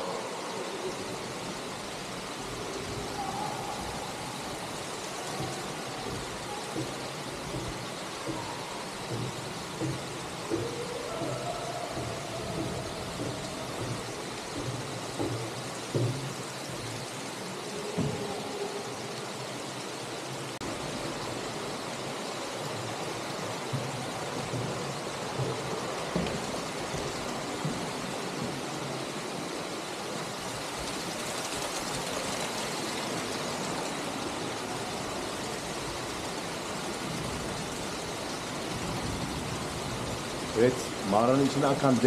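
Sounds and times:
underground stream rushing: 0.0 - 42.0
light knocks: 5.4 - 16.4.

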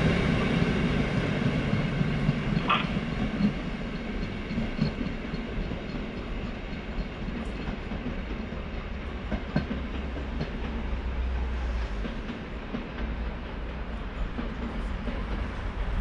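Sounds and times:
train rail rumble: 0.0 - 16.0
wheels clacking over rail joints: 1.7 - 11.3.

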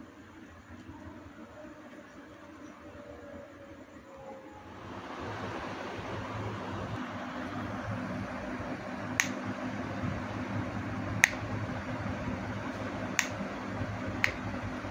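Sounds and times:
low hum and hiss: 0.0 - 14.9
rocker switch clicking: 9.2 - 9.4, 11.2 - 11.4, 13.1 - 13.4, 14.2 - 14.5.

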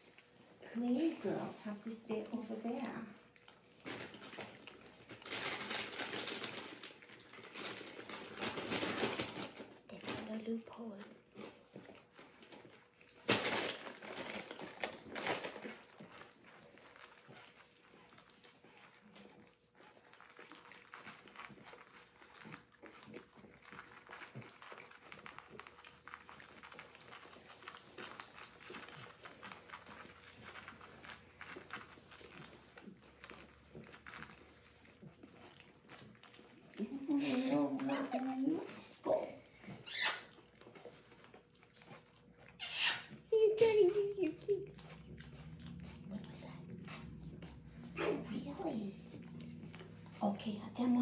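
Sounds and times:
dog licking with wet clicks: 0.0 - 51.0.

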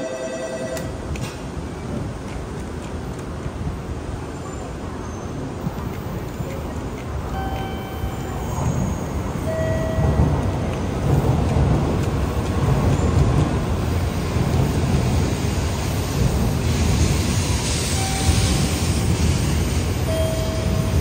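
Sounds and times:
train wheels rumbling: 0.8 - 21.0
rushing air: 10.4 - 21.0
hiss: 13.8 - 20.2.

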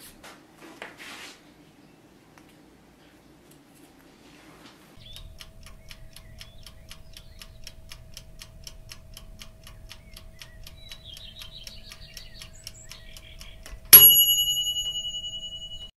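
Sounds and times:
faint steady tone: 5.0 - 15.9
rapid clock ticking: 5.0 - 15.9
loud bell ding: 14.0 - 15.9.

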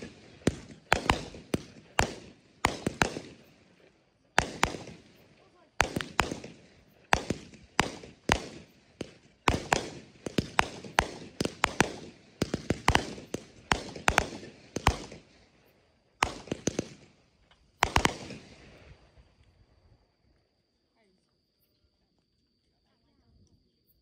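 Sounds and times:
fireworks bangs echoing: 0.0 - 3.8, 4.4 - 15.5, 16.2 - 17.2, 17.8 - 18.8.

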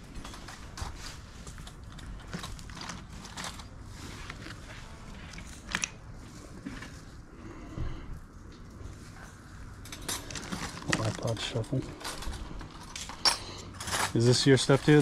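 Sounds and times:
rummaging in plastic crate: 0.0 - 7.1, 10.3 - 12.9.

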